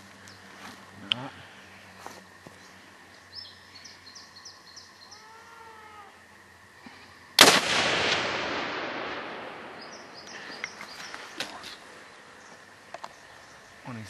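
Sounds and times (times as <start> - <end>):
faint bird chirps: 0.2 - 6.2, 9.7 - 14.0
rifle shot echoing: 7.4 - 10.5.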